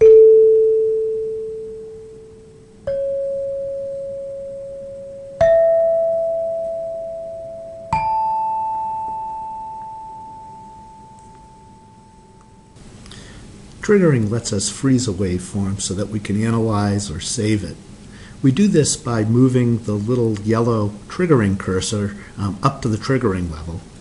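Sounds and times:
bar chimes ringing: 0.0 - 12.8.

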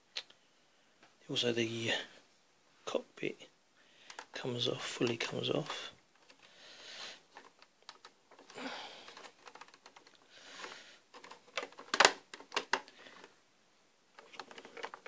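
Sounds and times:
toy model clicks and taps: 4.1 - 4.4, 7.4 - 12.9.

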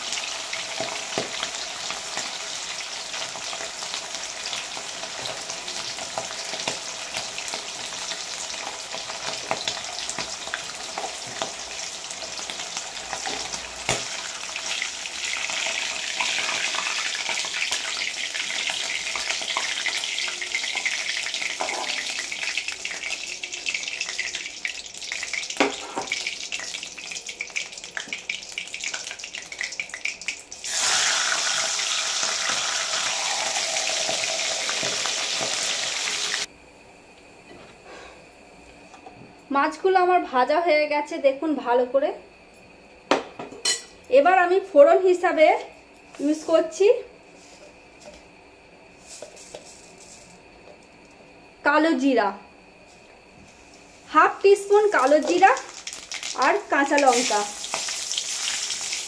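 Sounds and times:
fish sizzling in hot oil: 0.0 - 36.5, 54.6 - 59.0.

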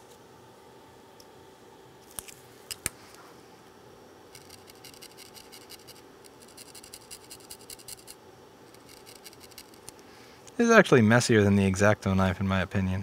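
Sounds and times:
hand tool scratching circuit board: 4.4 - 9.9.

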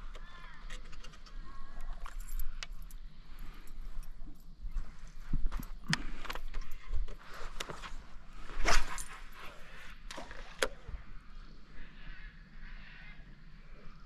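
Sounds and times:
fishing tackle clicks and rattles: 0.0 - 4.1, 5.7 - 7.8.

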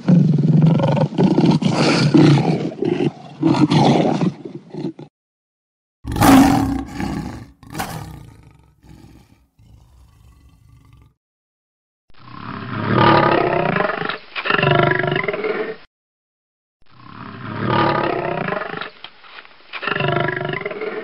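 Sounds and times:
lion roaring: 6.1 - 11.2.

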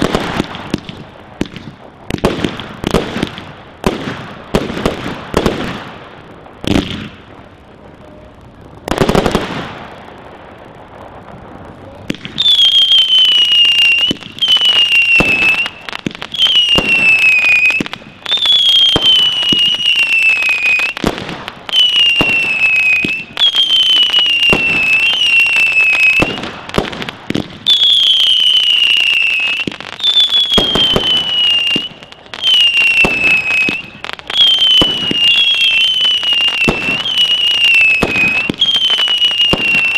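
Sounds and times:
whistling firework rockets: 0.0 - 39.9
firework shells bursting: 12.0 - 39.9.

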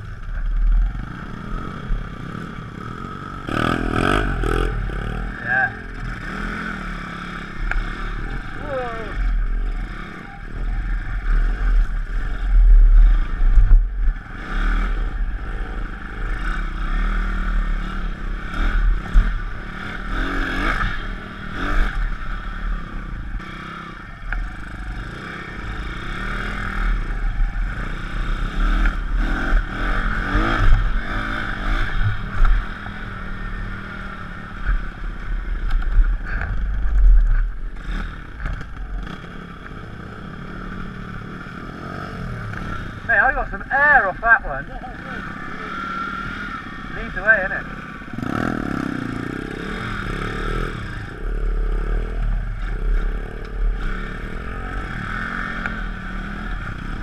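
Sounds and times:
motorbike engine revving: 0.0 - 57.0
bike rattling over bumps: 34.2 - 39.5.

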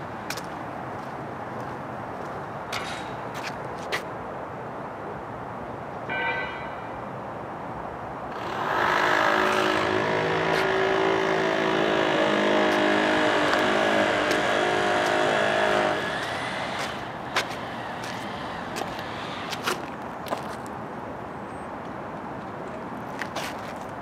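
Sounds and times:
motor engine running: 8.6 - 18.9.

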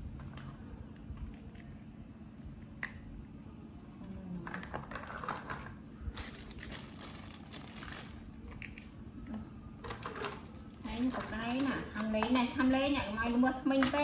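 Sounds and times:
crinkling and rustling: 4.5 - 8.9, 9.8 - 12.5.

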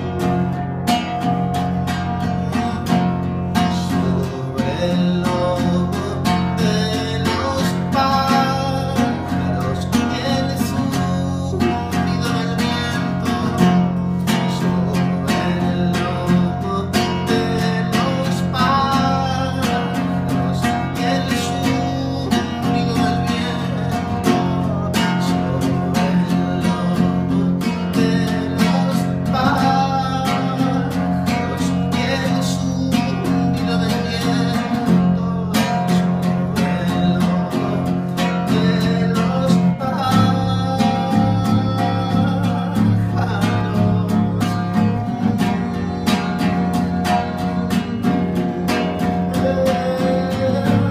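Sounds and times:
classical guitar strumming: 0.0 - 50.9
man singing: 0.0 - 50.9.

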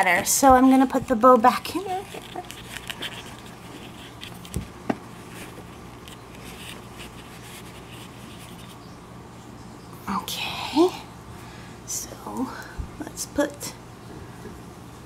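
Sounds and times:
steady low hum: 0.0 - 15.0
faint scratchy rustling: 1.0 - 8.8.

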